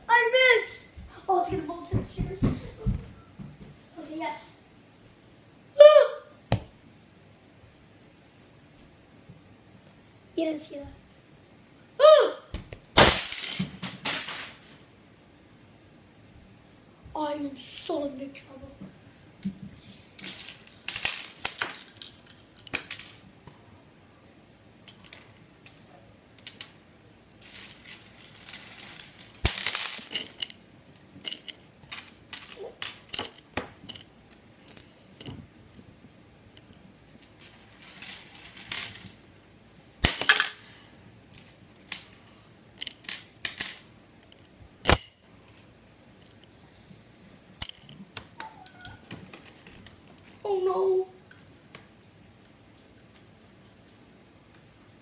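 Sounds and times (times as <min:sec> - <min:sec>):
small hard objects clinking: 0:27.4 - 0:30.6, 0:31.2 - 0:34.9.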